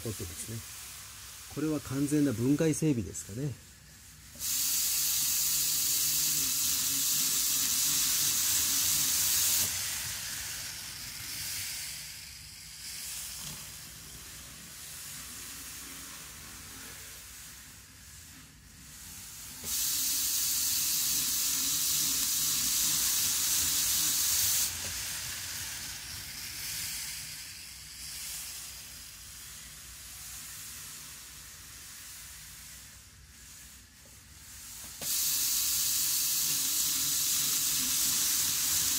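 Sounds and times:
model train running on track: 0:20.0 - 0:28.8, 0:35.2 - 0:38.9.

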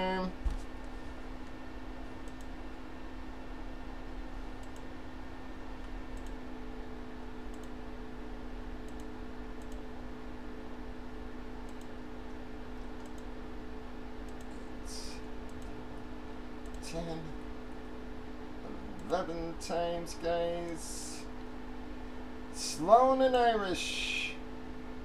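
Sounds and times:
steady hum: 0:00.0 - 0:25.0
computer mouse clicks: 0:02.2 - 0:02.6, 0:04.6 - 0:04.9, 0:05.8 - 0:06.4, 0:07.5 - 0:07.8, 0:08.8 - 0:09.9, 0:11.6 - 0:11.9, 0:12.9 - 0:13.3, 0:15.4 - 0:15.8, 0:16.6 - 0:16.9.

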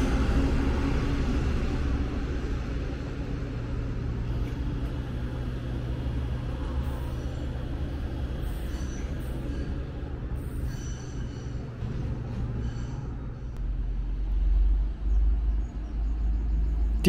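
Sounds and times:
railcar diesel engine humming: 0:00.0 - 0:17.0.

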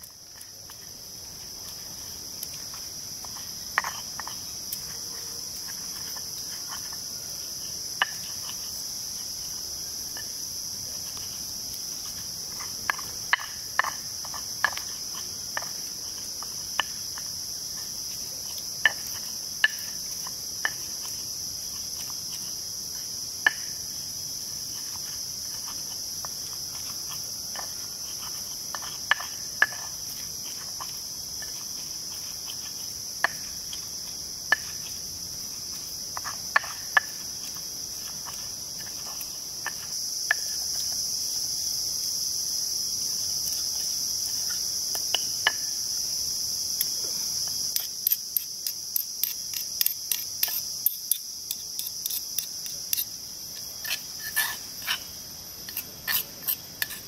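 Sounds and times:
insects droning: 0:00.0 - 0:57.0
stone pestle grinding in mortar: 0:03.2 - 0:07.1, 0:47.8 - 0:53.1, 0:53.7 - 0:55.1, 0:55.7 - 0:57.0.

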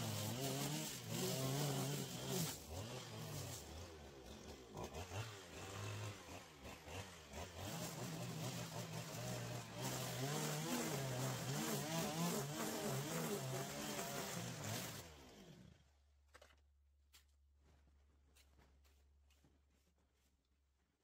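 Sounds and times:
string trimmer cutting grass: 0:00.0 - 0:15.9.

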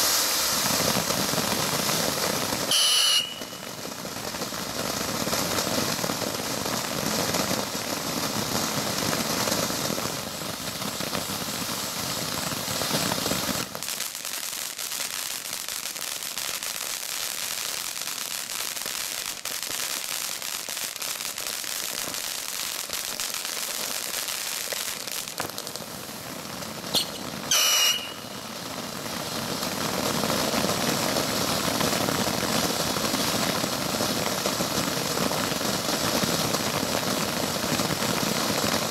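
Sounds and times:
firework fountains hissing: 0:00.0 - 0:38.9
brief high whistle: 0:02.7 - 0:03.8, 0:26.9 - 0:28.4.

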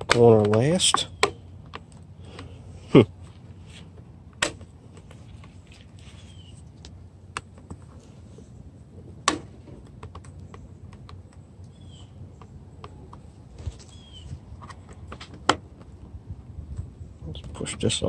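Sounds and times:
sharp plastic snap: 0:00.0 - 0:02.0, 0:04.4 - 0:04.7.

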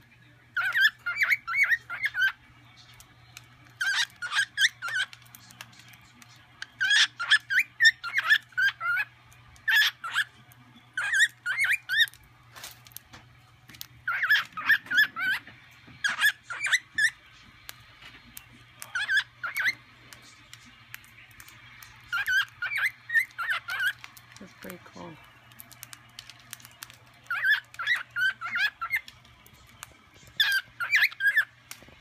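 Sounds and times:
cockatiel warbling chirps and whistles: 0:00.6 - 0:02.4, 0:03.7 - 0:05.2, 0:06.8 - 0:10.3, 0:11.0 - 0:12.2, 0:14.0 - 0:17.2, 0:18.9 - 0:19.8, 0:22.0 - 0:24.7, 0:27.2 - 0:29.1, 0:30.4 - 0:31.5.

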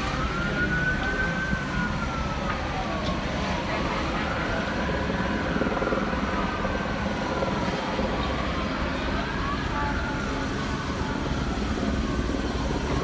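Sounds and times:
emergency sirens wailing: 0:00.0 - 0:13.0
low rumble of engines: 0:00.0 - 0:13.0.

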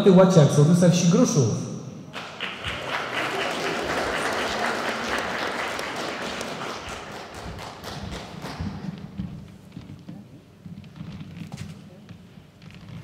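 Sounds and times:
audience applauding: 0:02.1 - 0:09.0.

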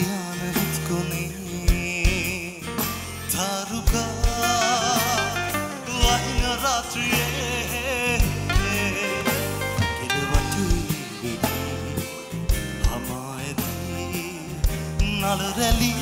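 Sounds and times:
drums: 0:00.0 - 0:16.0
man singing ballad: 0:00.0 - 0:16.0
piano: 0:00.0 - 0:16.0.

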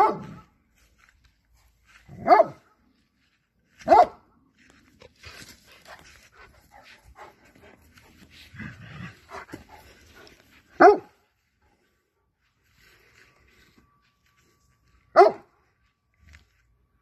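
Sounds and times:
loud dog bark: 0:00.0 - 0:00.4, 0:02.1 - 0:02.7, 0:03.8 - 0:04.2, 0:10.8 - 0:11.2, 0:15.2 - 0:15.5
dog panting and snuffling: 0:05.0 - 0:10.8.

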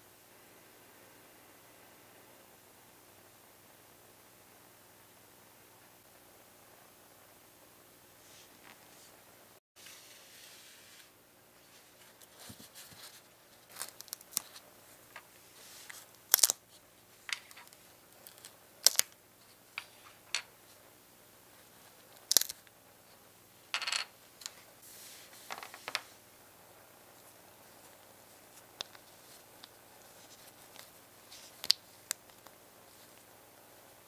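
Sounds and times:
small plastic parts clicking: 0:16.3 - 0:16.6, 0:17.3 - 0:19.2, 0:22.2 - 0:22.7.

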